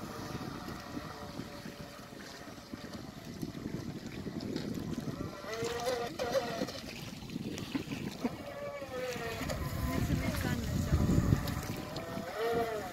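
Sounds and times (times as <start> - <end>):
electric motor whining: 0.0 - 2.6, 5.0 - 6.7, 8.4 - 12.9
wind rumble on microphone: 0.0 - 12.9.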